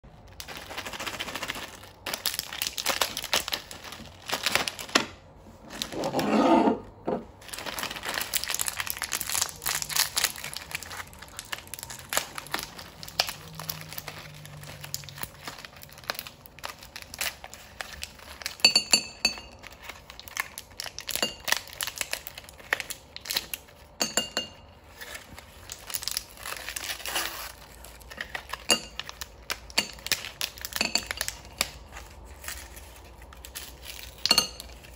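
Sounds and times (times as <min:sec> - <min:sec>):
plastic packaging crinkling and tearing: 0:00.1 - 0:06.0, 0:07.4 - 0:18.7, 0:19.5 - 0:24.0, 0:24.8 - 0:34.9
gumballs clinking on ceramic plate: 0:28.5 - 0:31.6, 0:34.1 - 0:34.9.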